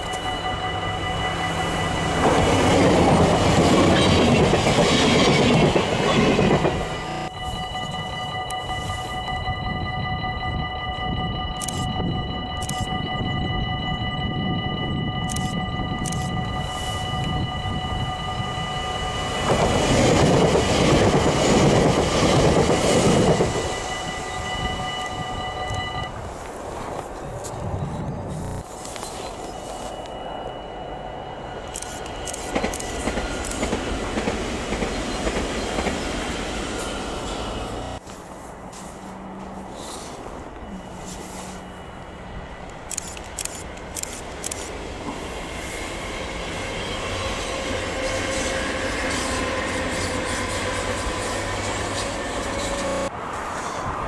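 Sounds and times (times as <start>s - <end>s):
train wheels on rails: 0.0s - 13.5s, 15.0s - 54.0s
electric train passing: 0.0s - 54.0s
train wheels clattering on rails: 2.0s - 7.3s, 31.8s - 38.0s.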